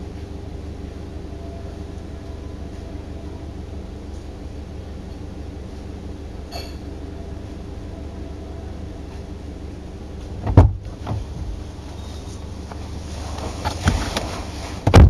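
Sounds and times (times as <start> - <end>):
car cabin rumble: 0.0 - 15.0
loud thump: 10.4 - 11.5.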